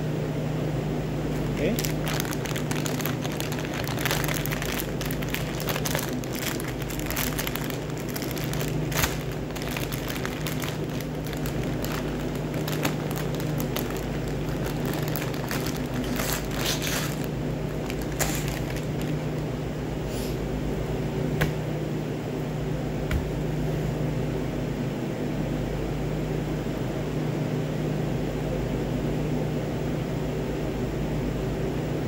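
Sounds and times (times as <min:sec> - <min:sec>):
low mechanical hum: 0:00.0 - 0:32.0
plastic bag crinkling: 0:01.3 - 0:19.5.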